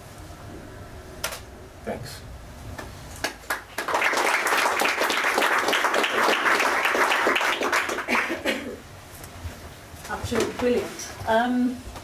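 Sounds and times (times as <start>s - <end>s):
audience applauding: 3.2s - 8.4s.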